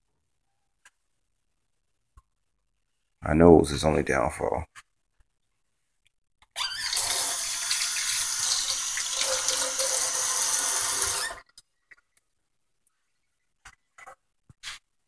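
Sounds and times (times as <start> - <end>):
faucet water running into sink: 6.6 - 11.4.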